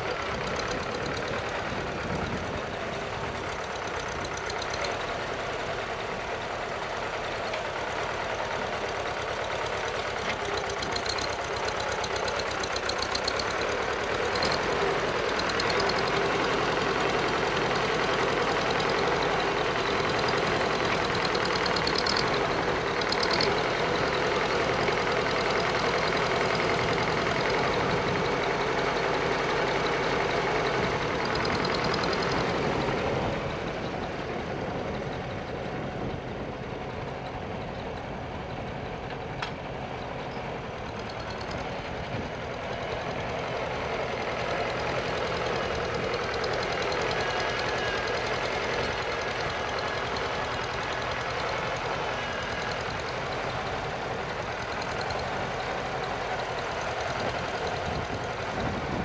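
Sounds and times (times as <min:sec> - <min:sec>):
tractor engine running under load: 0:00.0 - 0:59.0.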